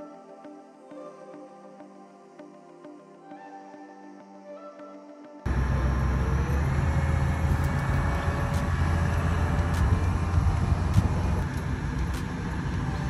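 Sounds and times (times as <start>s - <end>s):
crane engine rumbling: 5.5s - 13.0s.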